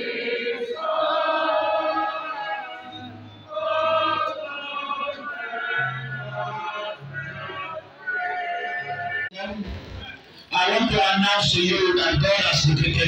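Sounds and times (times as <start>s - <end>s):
voices singing a slow chant: 0.0s - 9.3s.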